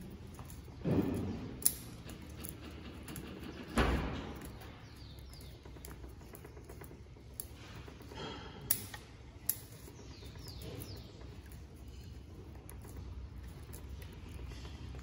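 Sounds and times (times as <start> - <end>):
scissors snipping twigs: 8.6 - 11.0.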